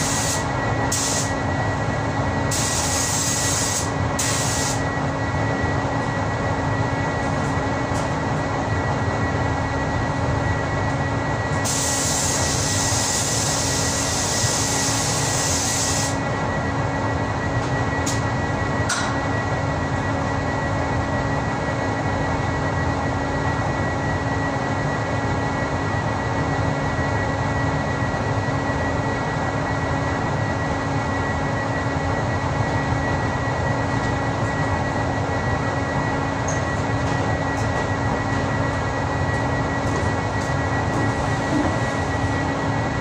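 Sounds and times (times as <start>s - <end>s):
constant hum: 0.0s - 43.0s
ventilation fans rushing air: 0.0s - 43.0s
thin high whine: 33.1s - 43.0s.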